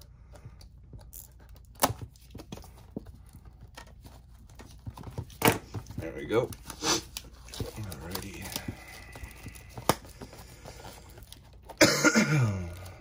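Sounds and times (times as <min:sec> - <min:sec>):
cardboard box rustles and ticks: 0:02.1 - 0:11.8.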